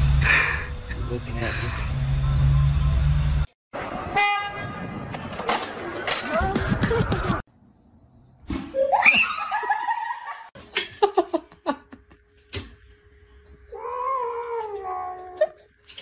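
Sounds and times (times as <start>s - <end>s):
human laughter: 8.8s - 12.2s
cat yowling: 13.7s - 15.5s.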